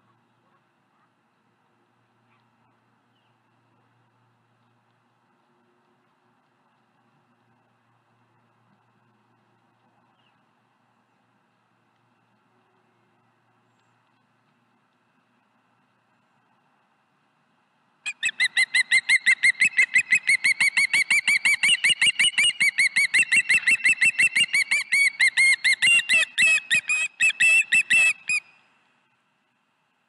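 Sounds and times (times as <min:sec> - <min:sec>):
osprey whistled chirps: 0:18.1 - 0:28.7.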